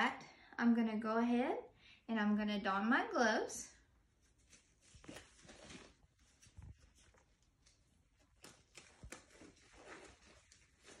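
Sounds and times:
gloves rustling and snapping: 4.4s - 11.0s.

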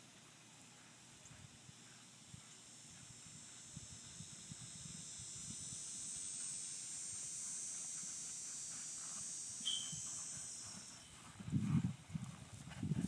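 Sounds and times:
distant horse hooves on grass: 0.0s - 13.0s
high-pitched insect chorus: 0.5s - 11.6s
high chirp: 9.6s - 11.2s.

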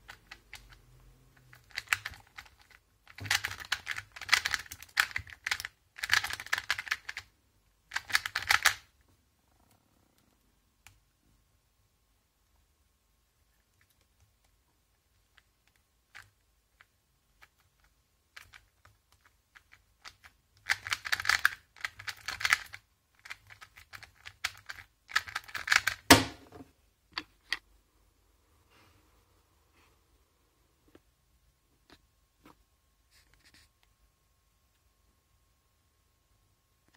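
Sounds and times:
plastic puzzle cube clicking: 0.0s - 7.3s, 7.9s - 8.9s, 15.2s - 26.1s.

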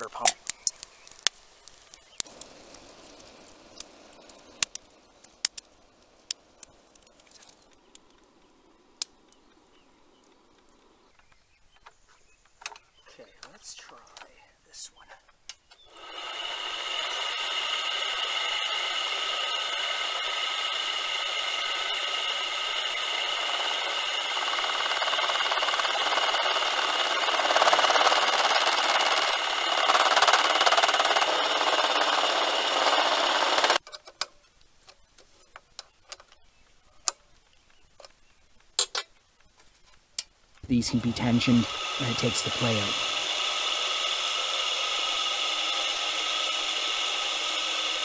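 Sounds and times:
harsh metal cutting noise: 0.0s - 7.7s, 15.9s - 33.8s, 40.6s - 48.0s
light clicks: 13.4s - 14.4s
cutting tool chattering: 15.8s - 33.8s, 40.6s - 48.0s
lathe motor whine: 15.8s - 33.8s, 40.6s - 48.0s.

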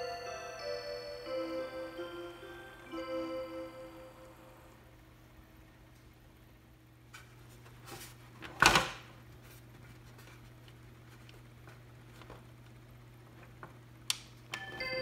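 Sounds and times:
electronic bell melody: 0.0s - 4.8s, 14.5s - 15.0s
faint steady hum: 0.0s - 15.0s.

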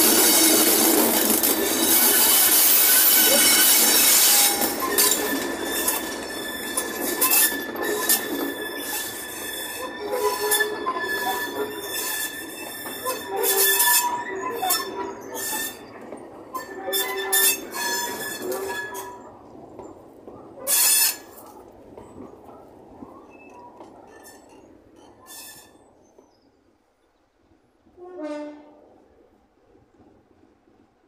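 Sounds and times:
high wheel squeals: 0.0s - 19.3s, 23.2s - 25.9s
freight wagon wheels clanking: 0.0s - 25.6s
diesel locomotive passing: 0.0s - 31.0s.

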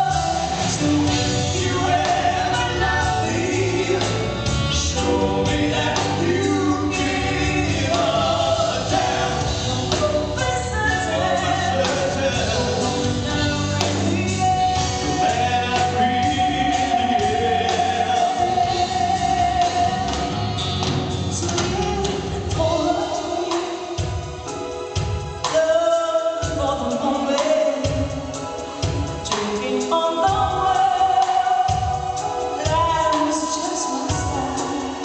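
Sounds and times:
man singing: 0.0s - 20.6s, 21.3s - 24.8s, 25.4s - 35.0s
live rock band with drums: 0.0s - 35.0s
woman singing: 5.0s - 14.6s, 21.3s - 24.5s, 25.4s - 35.0s.

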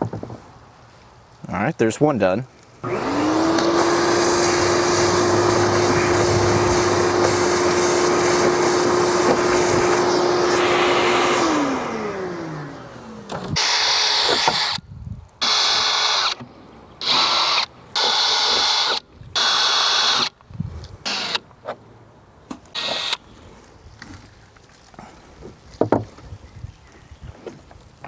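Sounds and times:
cordless drill drilling into metal: 2.8s - 12.2s, 13.5s - 14.8s, 15.4s - 16.4s, 17.0s - 20.3s, 21.1s - 21.4s, 22.8s - 23.2s
vacuum cleaner whining: 2.8s - 14.8s, 15.4s - 16.4s, 22.8s - 23.2s.

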